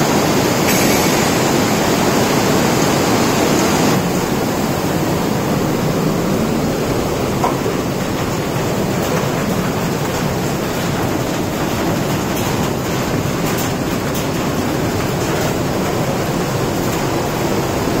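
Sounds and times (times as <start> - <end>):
floodwater rushing: 0.0 - 18.0.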